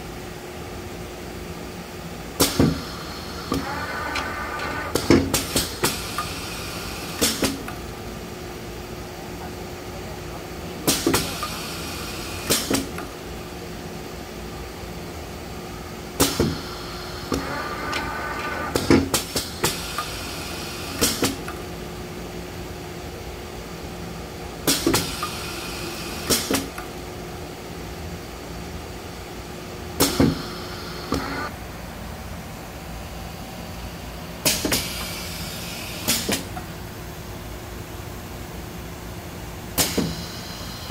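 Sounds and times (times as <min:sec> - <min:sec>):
steady machine hum: 0:00.0 - 0:40.9.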